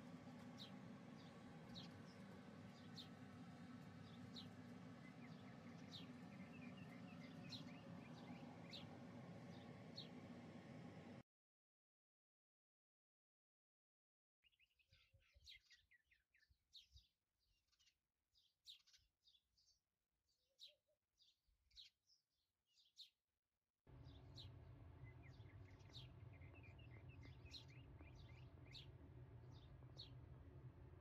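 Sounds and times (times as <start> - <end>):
small birds chirping: 0.0 - 11.2, 24.0 - 30.3
steady low hum: 0.0 - 11.2, 23.9 - 31.0.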